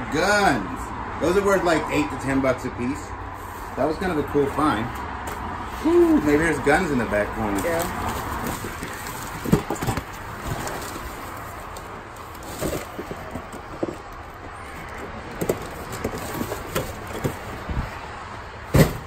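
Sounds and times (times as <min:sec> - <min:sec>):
crumpled newspaper rustling: 0:05.9 - 0:13.8
metal box knocks and clunks: 0:08.7 - 0:10.2, 0:18.6 - 0:19.0.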